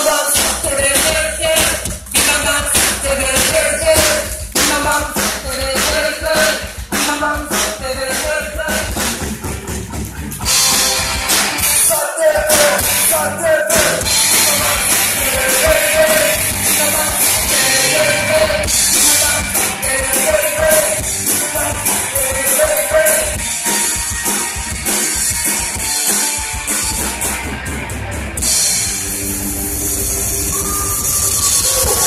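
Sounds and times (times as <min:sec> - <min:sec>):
person singing: 0:00.0 - 0:09.4, 0:11.7 - 0:23.4
live rock band playing: 0:00.0 - 0:32.0.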